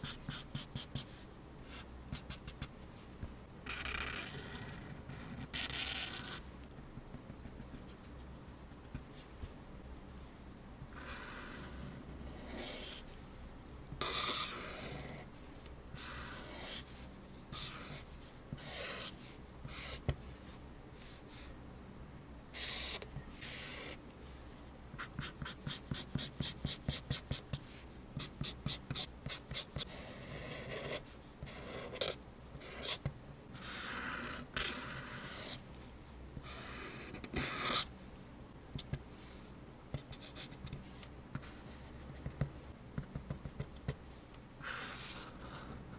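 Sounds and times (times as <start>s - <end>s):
marker scratching on paper: 0.0s - 2.7s, 3.7s - 6.4s, 7.0s - 9.2s, 11.0s - 13.1s, 14.0s - 15.3s, 16.0s - 20.2s, 22.6s - 24.0s, 25.0s - 35.7s, 36.4s - 37.9s, 39.9s - 44.0s, 44.6s - 45.8s.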